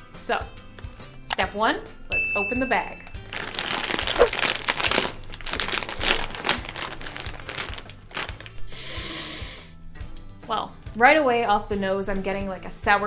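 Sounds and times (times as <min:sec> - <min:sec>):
plastic chip bag crinkling: 0:03.1 - 0:08.7.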